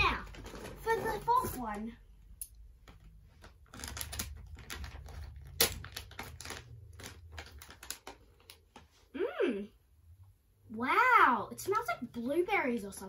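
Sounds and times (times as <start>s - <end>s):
foil packet crinkling: 2.9s - 8.7s.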